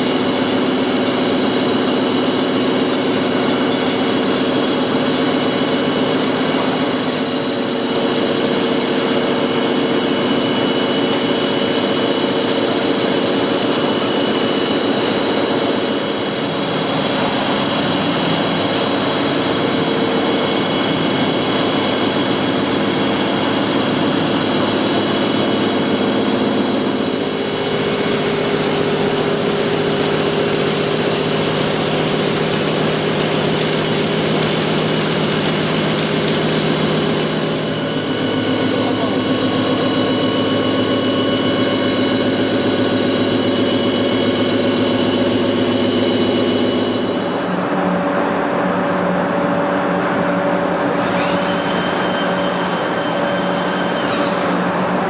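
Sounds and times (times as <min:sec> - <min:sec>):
milling machine hum with whining tones: 0:00.0 - 0:55.0
coolant spray hiss: 0:27.0 - 0:39.8.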